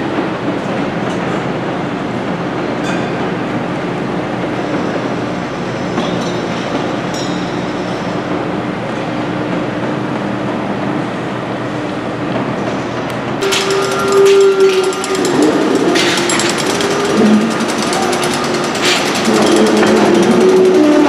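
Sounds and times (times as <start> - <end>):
rapid mechanical hammering: 13.4 - 21.0.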